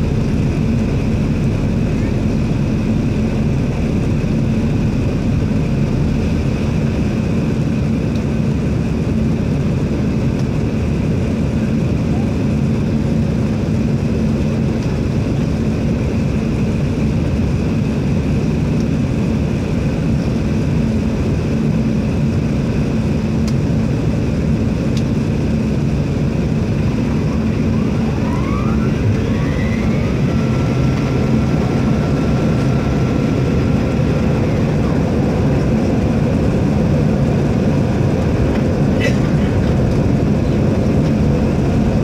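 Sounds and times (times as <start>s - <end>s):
faint rising whines: 0.0s - 7.6s, 26.0s - 39.0s
low hum: 0.0s - 10.5s, 20.1s - 42.0s
airliner engine and airflow roar: 0.0s - 42.0s.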